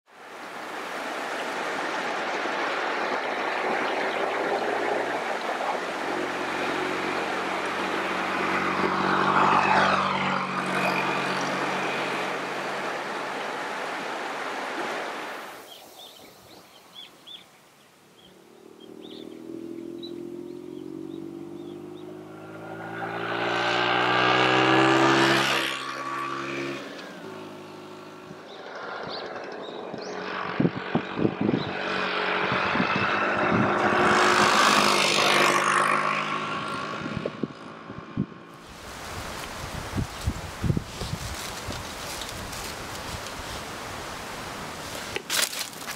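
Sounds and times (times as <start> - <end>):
scooter engine passing: 1.6 - 15.5, 18.2 - 45.9
scooter engine accelerating: 3.8 - 13.2, 18.5 - 43.4.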